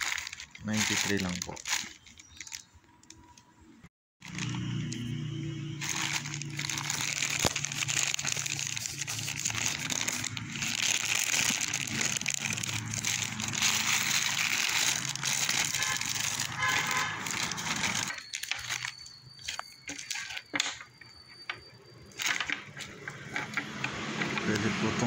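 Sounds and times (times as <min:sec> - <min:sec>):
plastic mailer pouch crinkling: 0:00.0 - 0:03.4, 0:04.2 - 0:05.2, 0:05.8 - 0:20.8.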